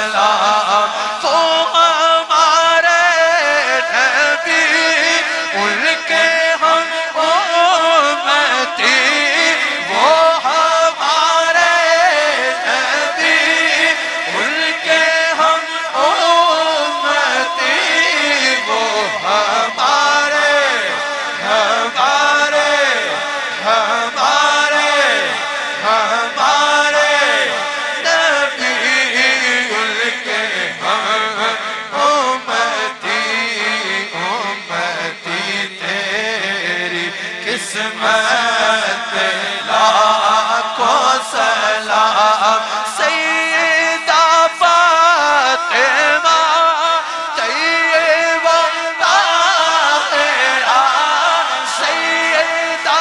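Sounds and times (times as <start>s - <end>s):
person chanting: 0.0s - 53.0s.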